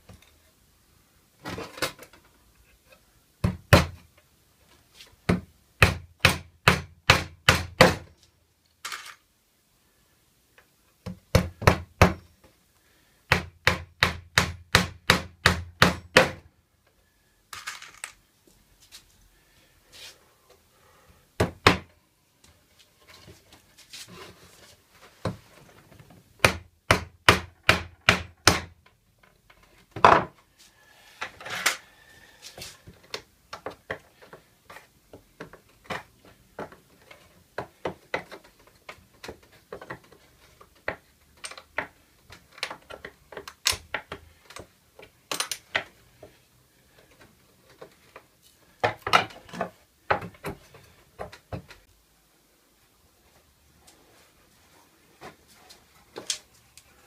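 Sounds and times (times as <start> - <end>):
hammer striking wood: 5.3 - 8.0, 13.3 - 16.4, 21.4 - 21.9, 26.4 - 28.7.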